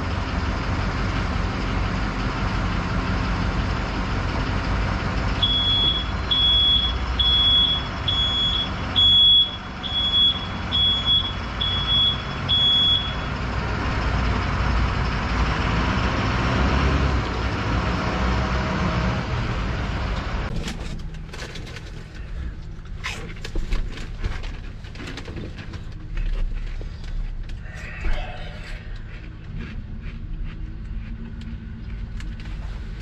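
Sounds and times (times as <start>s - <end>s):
vehicle engine rumbling: 0.0s - 33.0s.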